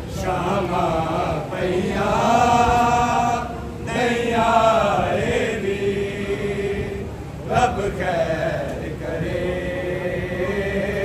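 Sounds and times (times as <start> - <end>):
men chanting a lament: 0.0 - 11.0.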